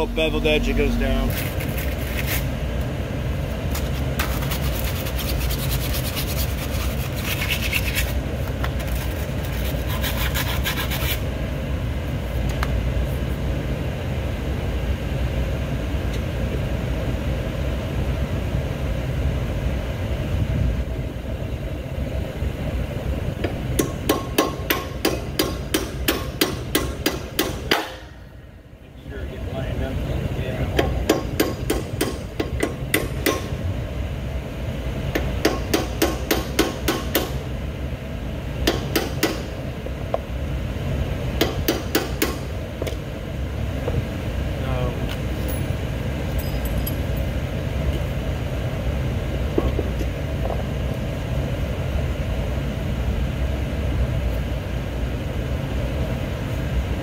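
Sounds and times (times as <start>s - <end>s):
metal parts scraping: 1.3s - 2.5s, 45.3s - 47.2s
hammer tapping on metal: 23.4s - 28.0s, 30.8s - 33.5s, 35.2s - 37.4s, 38.6s - 39.5s, 41.4s - 42.4s.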